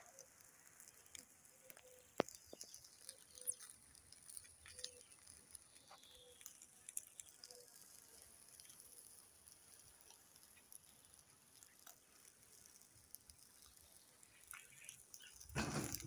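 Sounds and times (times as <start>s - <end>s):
fat crackling on charcoal: 0.0s - 16.0s
sharp pop: 15.5s - 16.0s.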